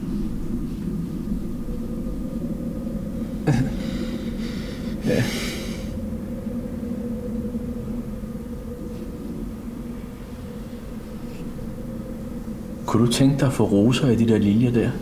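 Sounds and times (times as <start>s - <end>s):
low room hum: 0.0s - 15.0s
man snorting through nose: 3.5s - 6.0s.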